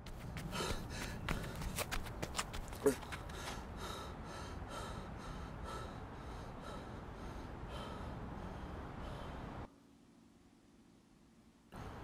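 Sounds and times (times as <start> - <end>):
man panting and gasping: 0.2 - 9.6.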